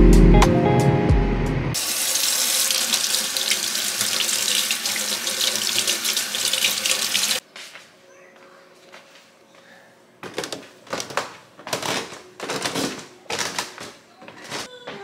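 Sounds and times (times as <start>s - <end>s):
faucet running into steel sink: 1.8s - 7.4s
hands rinsed under water: 1.8s - 7.4s.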